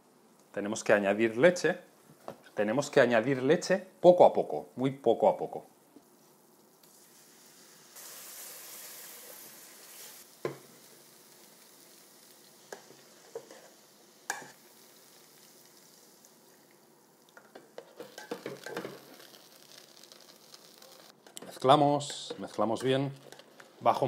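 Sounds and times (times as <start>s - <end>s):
liquid sizzling in a pot: 6.0s - 24.0s.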